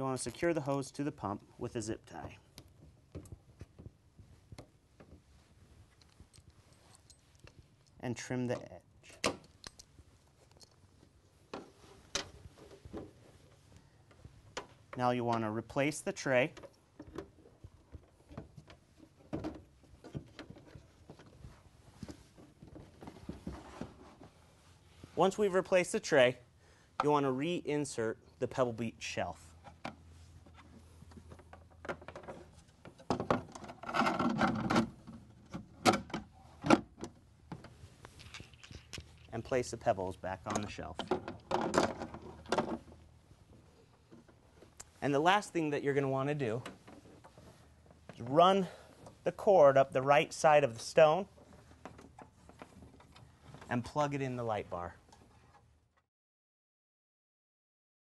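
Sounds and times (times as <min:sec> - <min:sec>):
hands handling pump clicks: 0:35.5 - 0:39.4.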